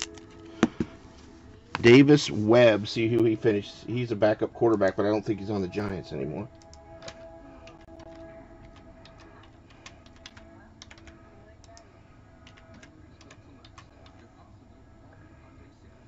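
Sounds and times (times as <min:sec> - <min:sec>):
faint keyboard typing: 0:06.5 - 0:14.5.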